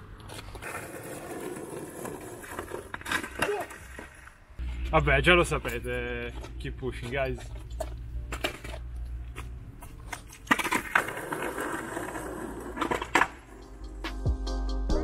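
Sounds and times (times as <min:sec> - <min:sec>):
skateboard wheels rolling on asphalt: 0:00.0 - 0:14.0
skateboard clacking: 0:00.2 - 0:04.3, 0:10.0 - 0:13.6
light footsteps: 0:04.6 - 0:10.5
music: 0:13.4 - 0:15.0.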